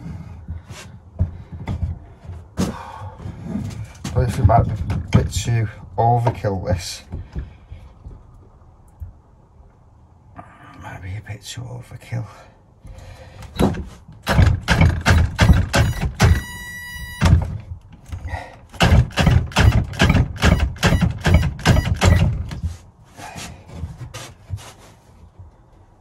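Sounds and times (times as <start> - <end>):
rapid knocking of drill: 14.2 - 16.6, 18.8 - 22.3
cordless drill straining: 15.0 - 17.4.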